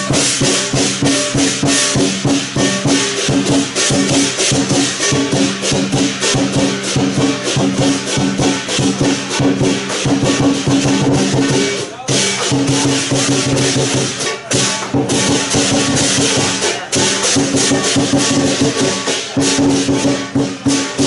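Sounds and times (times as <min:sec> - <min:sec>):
big drum beaten rapidly: 0:00.0 - 0:21.0
crashing cymbals: 0:00.0 - 0:21.0.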